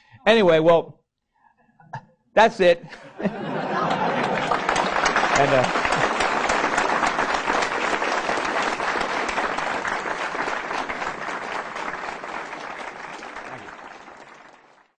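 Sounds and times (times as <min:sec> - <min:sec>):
audience applauding: 0:03.3 - 0:15.0.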